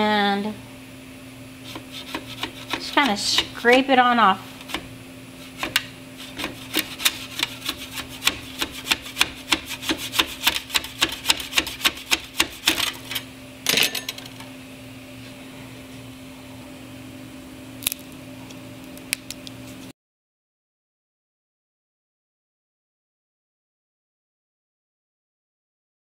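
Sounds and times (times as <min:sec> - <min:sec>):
steady hum: 0:00.0 - 0:19.9
metal spatula scraping plastic: 0:01.6 - 0:03.6, 0:04.6 - 0:13.2.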